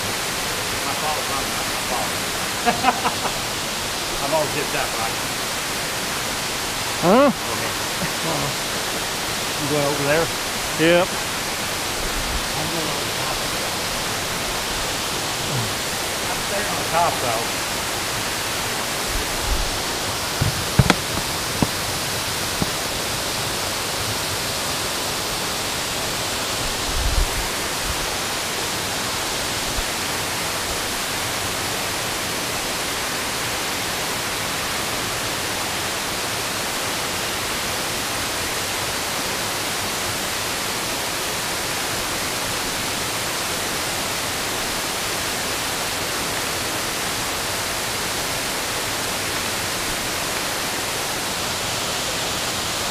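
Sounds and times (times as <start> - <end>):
creek water rushing: 0.0 - 52.9
low thumps: 19.5 - 23.3.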